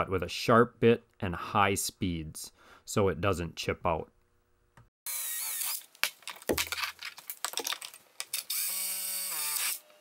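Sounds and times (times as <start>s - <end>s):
power drill whining: 8.4s - 10.0s.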